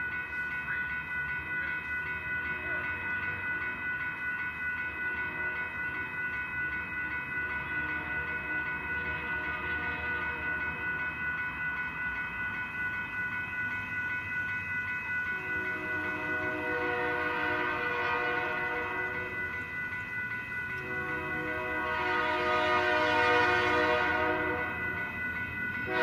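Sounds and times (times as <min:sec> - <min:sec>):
crossing warning bell ringing: 0:00.0 - 0:26.0
locomotive air horn chord: 0:15.4 - 0:19.2, 0:20.8 - 0:24.8.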